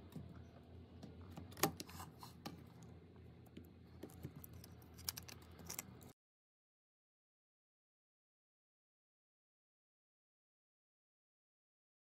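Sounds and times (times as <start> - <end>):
low steady hum: 0.0 - 6.2.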